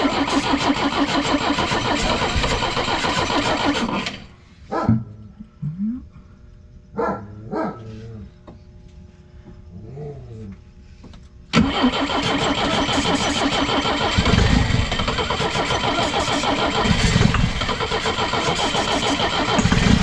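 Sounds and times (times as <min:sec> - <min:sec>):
engine cranking on starter: 0:00.0 - 0:04.4, 0:11.5 - 0:20.0.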